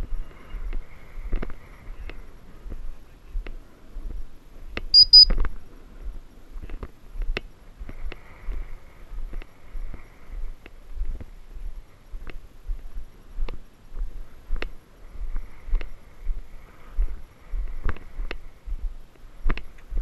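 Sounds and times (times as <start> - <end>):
short high chirps: 5.0 - 5.4.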